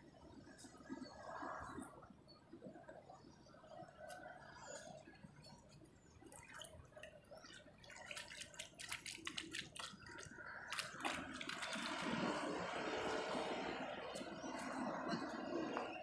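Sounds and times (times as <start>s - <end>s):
water splashing and dripping: 3.8s - 15.9s
steady rushing noise: 10.3s - 16.0s.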